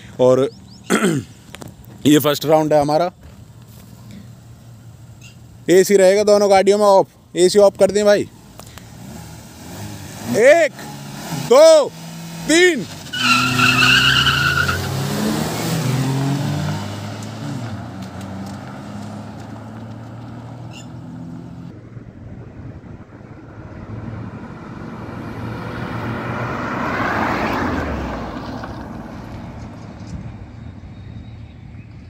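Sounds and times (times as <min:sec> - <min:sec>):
car engines revving: 0:07.9 - 0:30.9
tyre squeal: 0:13.0 - 0:15.0, 0:20.7 - 0:21.0.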